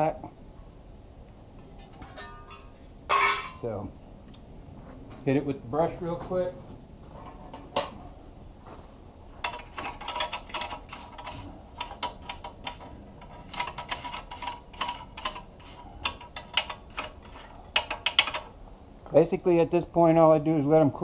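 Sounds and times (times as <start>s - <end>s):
wire brush scrubbing steel: 9.6s - 18.5s.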